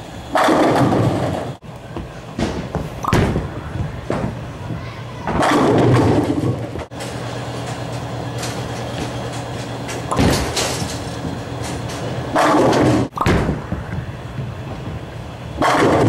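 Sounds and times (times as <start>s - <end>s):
bowling pins crashing: 0.3s - 1.6s, 5.2s - 13.8s, 15.6s - 16.0s.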